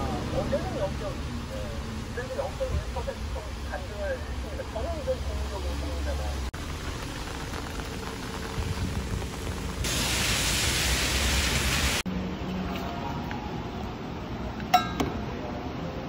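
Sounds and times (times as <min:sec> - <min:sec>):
rain on an umbrella: 0:06.5 - 0:12.0.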